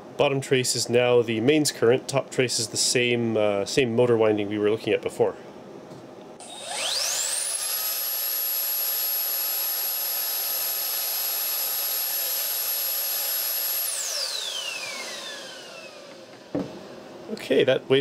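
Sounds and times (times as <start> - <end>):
hand dryer motor whining: 6.4 - 16.5.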